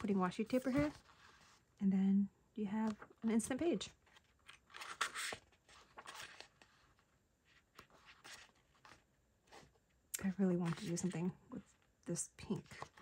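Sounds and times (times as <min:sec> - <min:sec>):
paper rustling: 0:00.0 - 0:01.7, 0:02.8 - 0:11.4.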